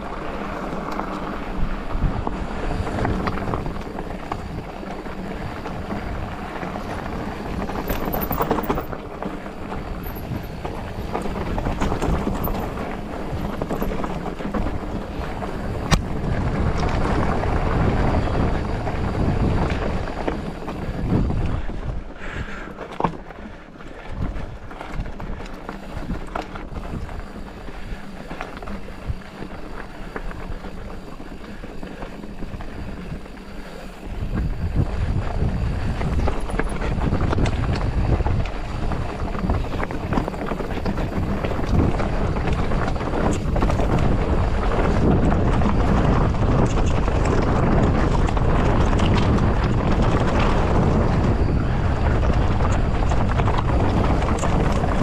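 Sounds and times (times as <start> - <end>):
bike tyres rattling over rock: 0.0 - 55.0
wind rushing over microphone: 0.0 - 55.0.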